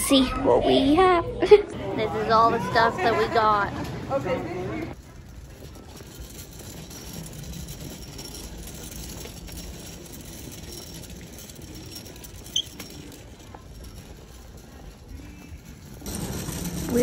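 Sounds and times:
mobility aid rolling on tiles: 2.1s - 17.0s.

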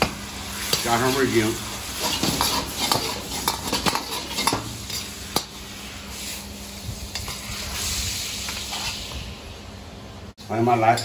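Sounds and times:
steady sizzle: 0.0s - 11.0s
metal ladle scraping a wok: 2.0s - 5.1s.

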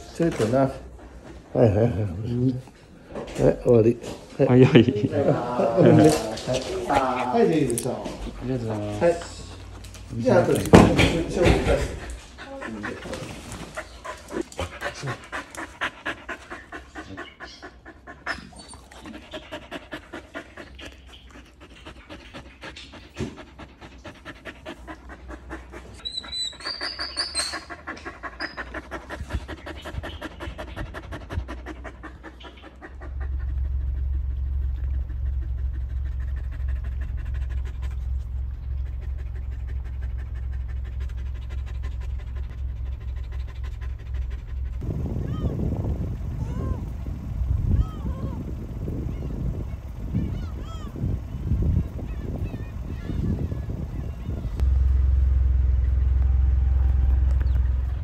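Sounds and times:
dog panting: 0.0s - 58.0s
low rumble: 6.0s - 58.0s
dog squeaks: 17.0s - 19.5s, 25.2s - 30.6s.

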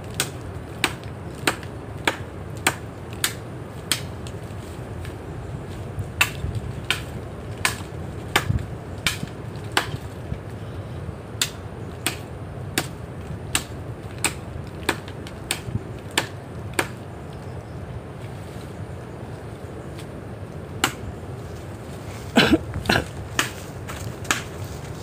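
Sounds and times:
axe chopping palm trunk: 0.2s - 4.1s, 6.2s - 10.1s, 11.4s - 17.0s, 20.8s - 21.1s, 22.4s - 24.6s.

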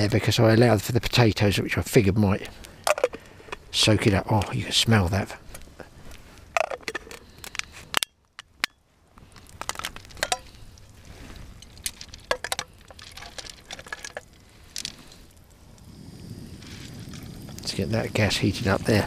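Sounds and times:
frying pan clinking on pebbles: 10.1s - 10.5s.

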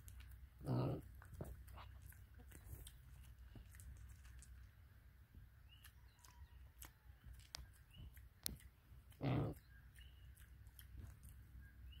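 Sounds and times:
soil clicks and crunches: 0.0s - 4.8s, 5.7s - 11.4s
pig grunt: 0.6s - 1.9s, 9.2s - 9.6s.

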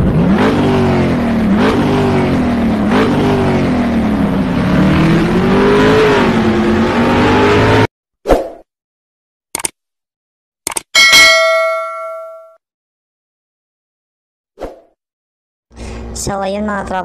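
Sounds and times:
vehicle engine accelerating: 0.0s - 7.9s.

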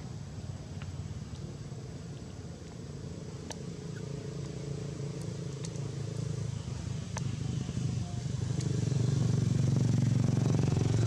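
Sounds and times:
low mechanical drone: 0.0s - 11.0s
faint sharp clicks: 3.4s - 3.7s, 4.4s - 5.9s.

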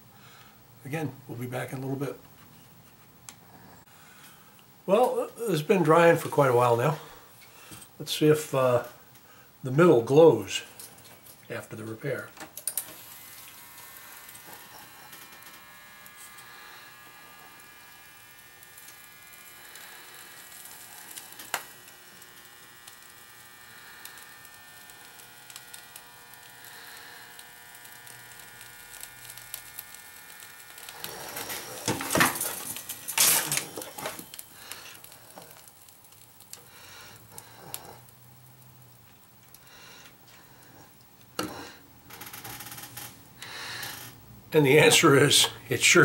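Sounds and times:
toaster electrical whine: 10.1s - 46.0s.

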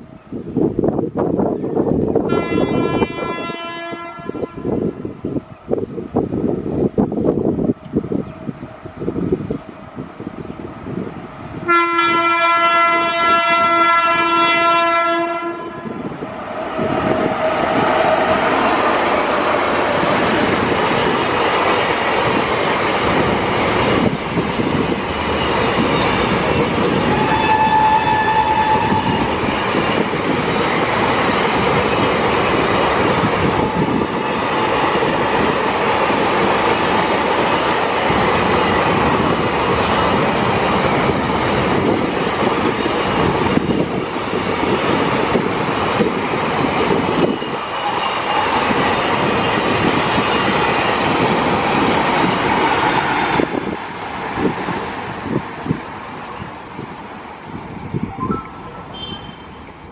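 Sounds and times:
train wheels rumbling on rails: 0.0s - 58.2s
locomotive horn blast: 2.3s - 4.9s, 11.6s - 16.1s, 27.1s - 29.3s, 58.7s - 59.7s.

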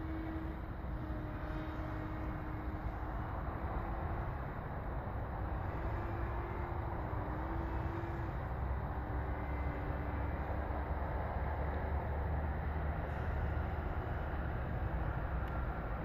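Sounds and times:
faint wavering hum: 0.0s - 16.0s
wind rumble on microphone: 0.0s - 16.0s.

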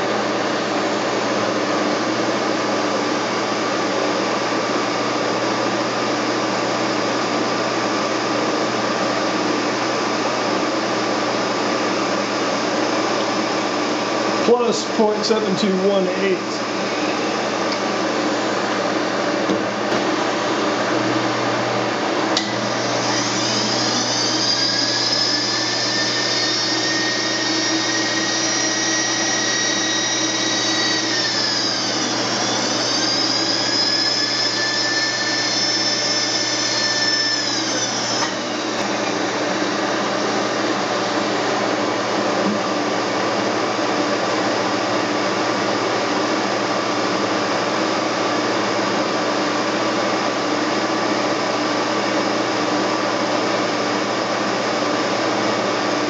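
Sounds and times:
milling machine humming: 0.0s - 56.0s
electric motor whining: 22.4s - 41.6s.

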